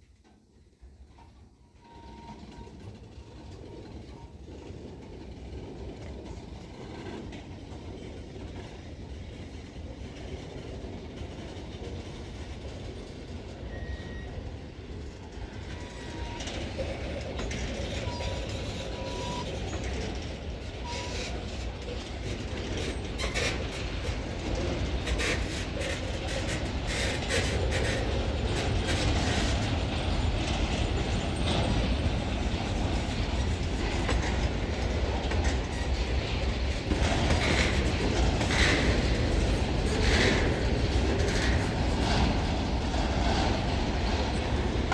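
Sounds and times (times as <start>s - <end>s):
freight train wheels rumbling: 0.0s - 44.9s
wheel squeals: 1.8s - 4.4s, 13.6s - 14.6s, 15.5s - 20.2s, 20.8s - 21.7s.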